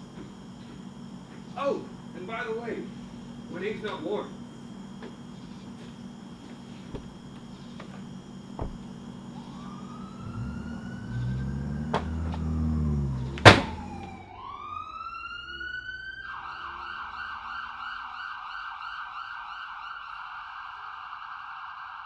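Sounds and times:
police siren wailing: 8.8 - 22.0.

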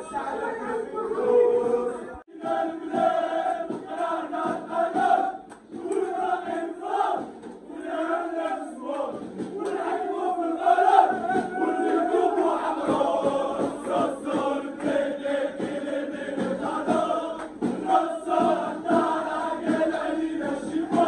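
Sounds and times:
crowd chanting: 0.0 - 21.0
steady beat: 0.0 - 21.0.

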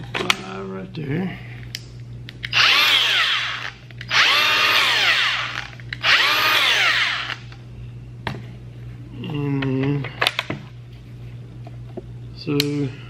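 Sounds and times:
angle grinder motor whining: 2.5 - 7.5.

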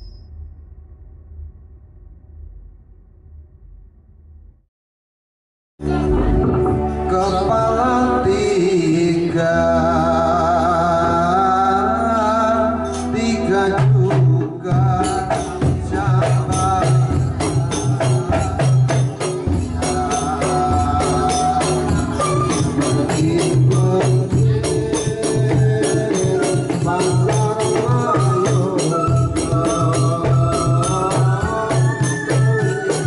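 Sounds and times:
electronic keyboard melody: 5.8 - 14.0
hand drums beating: 13.8 - 33.0.

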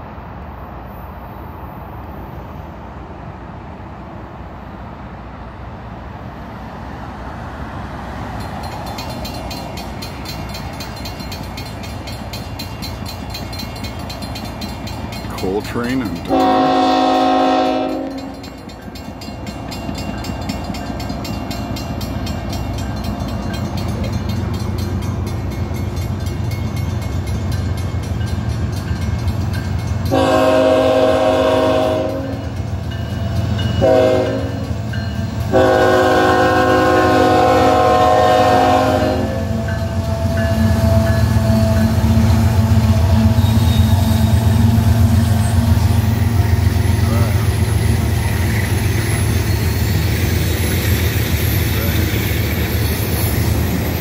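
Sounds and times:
locomotive engine rumble: 6.7 - 54.0
locomotive horn blasts: 16.3 - 18.5, 30.1 - 32.6, 33.8 - 34.7, 35.5 - 42.0.

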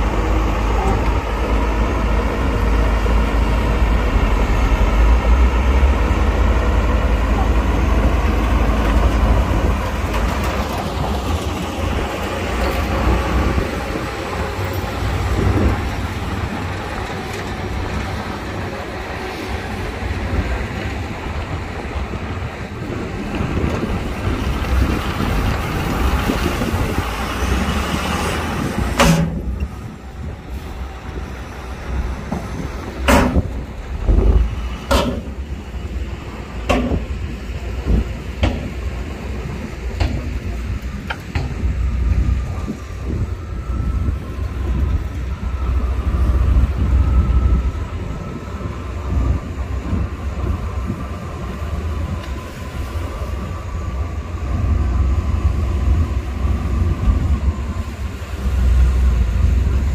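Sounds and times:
heavy machinery diesel engine: 0.0 - 59.9
sharp knocks: 32.4 - 33.6.

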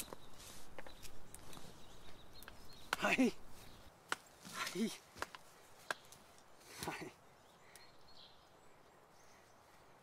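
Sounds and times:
faint bird chirps: 5.7 - 10.0.

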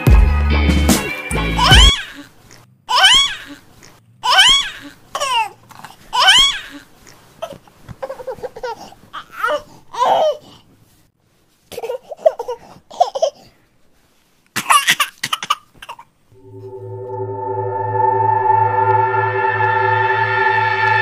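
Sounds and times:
babbling voice: 1.6 - 2.3.

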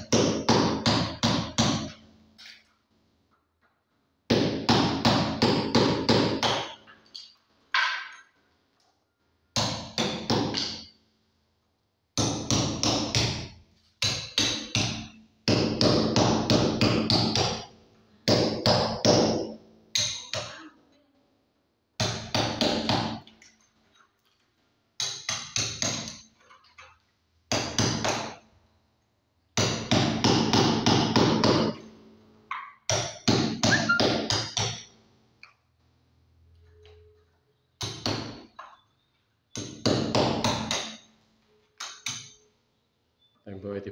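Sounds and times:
hammer striking chisel into wall: 0.0 - 2.0, 4.3 - 7.2, 9.5 - 11.0, 12.2 - 20.6, 25.0 - 26.3, 27.5 - 28.4, 29.6 - 31.9, 32.5 - 34.9, 37.8 - 38.8, 39.5 - 41.1, 41.8 - 42.4.

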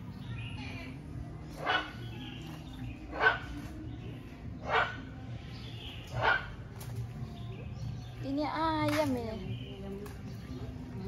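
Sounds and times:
animal calling: 0.4 - 3.8, 4.6 - 5.3.

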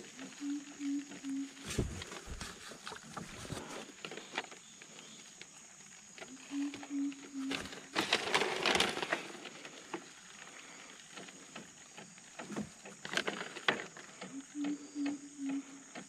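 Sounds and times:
animal call: 0.0 - 2.3, 6.3 - 8.4, 14.2 - 16.0
thin high insect drone: 0.0 - 16.0.

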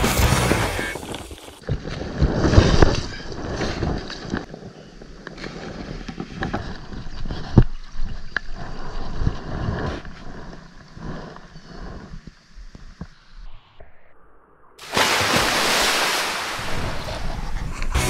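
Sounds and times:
wind rumbling on microphone: 1.0 - 14.0, 16.5 - 18.0
fish splashing at surface: 14.8 - 17.0.

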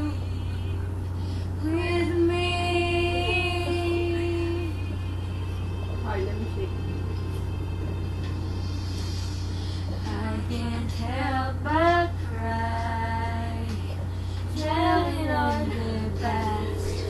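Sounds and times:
woman singing with music: 0.0 - 5.6, 9.9 - 17.0
steady low hum: 0.0 - 17.0.

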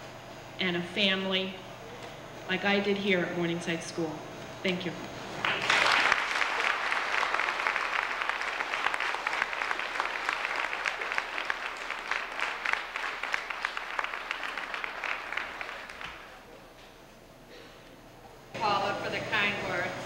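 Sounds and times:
audience applauding: 5.4 - 16.5.

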